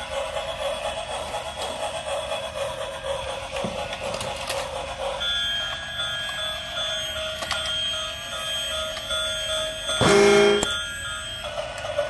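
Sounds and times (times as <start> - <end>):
toy train electronic tune: 0.0 - 12.0
electronic beeping tones: 10.0 - 10.7.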